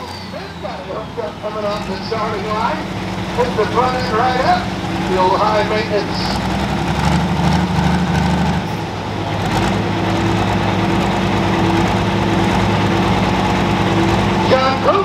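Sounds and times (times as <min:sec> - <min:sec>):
tractor engine running low revs: 0:00.0 - 0:15.0.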